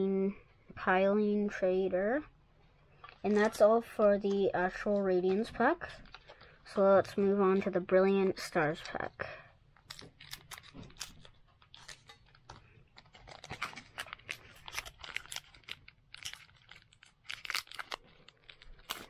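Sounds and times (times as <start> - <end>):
foil wrapper crinkling and tearing: 9.8 - 19.0.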